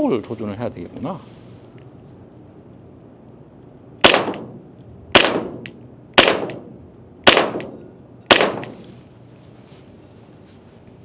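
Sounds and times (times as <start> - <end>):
airsoft pistol shots: 4.0 - 8.8.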